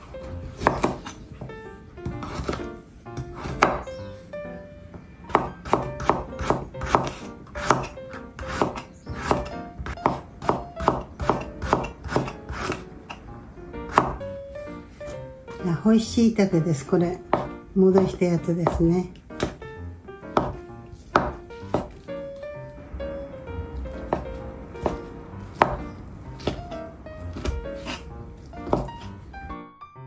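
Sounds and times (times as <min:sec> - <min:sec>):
quiet background music: 0:00.0 - 0:30.0
knife chopping on wooden board: 0:00.4 - 0:01.5, 0:02.1 - 0:03.9, 0:05.3 - 0:13.2, 0:13.9 - 0:14.2, 0:17.3 - 0:22.0, 0:23.9 - 0:29.2.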